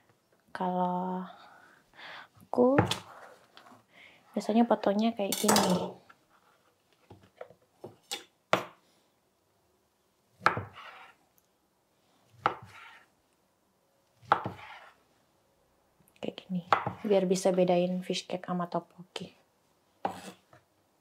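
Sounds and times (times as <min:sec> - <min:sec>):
knife cutting on wooden board: 0:10.4 - 0:11.2, 0:12.4 - 0:13.1, 0:14.2 - 0:15.0, 0:20.0 - 0:20.4.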